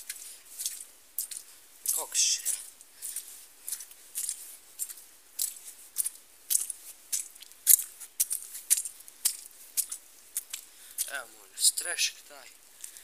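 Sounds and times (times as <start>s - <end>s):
footsteps on muddy ground: 0.0s - 13.0s.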